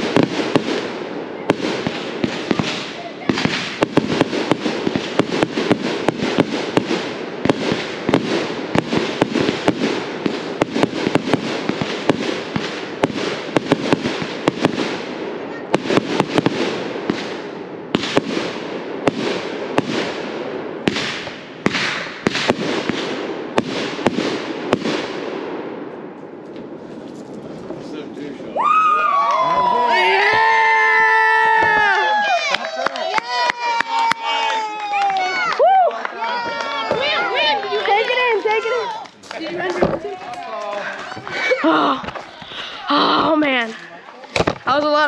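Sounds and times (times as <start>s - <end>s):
fireworks hiss: 0.0s - 20.2s
fireworks popping and crackling: 0.0s - 28.5s, 29.2s - 45.0s.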